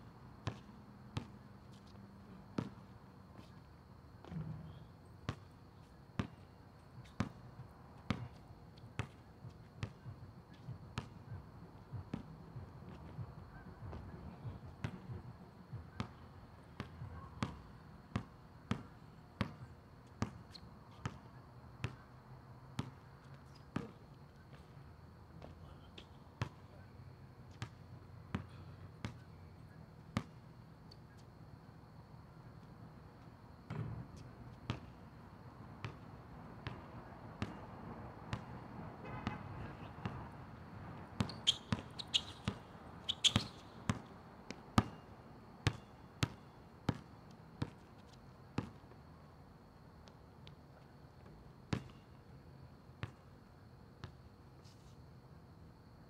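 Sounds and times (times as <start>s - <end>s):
basketball bouncing on asphalt: 0.4s - 3.6s, 4.2s - 5.5s, 6.2s - 22.1s, 22.8s - 24.8s, 25.4s - 26.6s, 27.5s - 29.4s, 30.1s - 30.4s, 33.5s - 35.1s, 35.8s - 48.9s, 51.2s - 52.1s, 53.0s - 53.3s, 54.0s - 54.3s.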